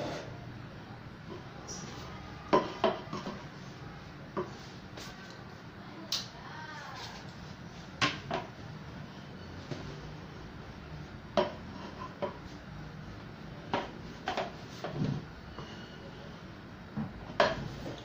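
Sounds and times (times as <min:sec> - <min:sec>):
spatula scraping pot: 0:00.0 - 0:00.4, 0:11.4 - 0:12.4.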